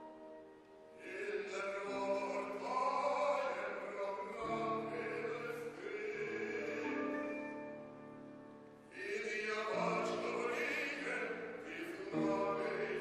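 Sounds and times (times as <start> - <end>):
low men's voices singing: 1.0 - 7.8, 8.9 - 13.0
choir singing in harmony: 1.0 - 7.9, 8.9 - 13.0.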